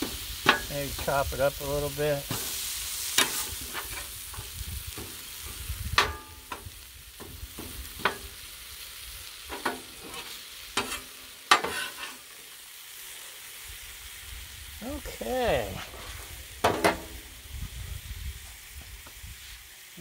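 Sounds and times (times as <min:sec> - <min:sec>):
spatula clacking on griddle: 0:00.0 - 0:01.1, 0:02.2 - 0:08.5, 0:09.4 - 0:12.3, 0:16.6 - 0:17.2
vegetables sizzling on a griddle: 0:00.0 - 0:20.0
metal spatula scraping: 0:02.3 - 0:06.7, 0:09.5 - 0:12.4.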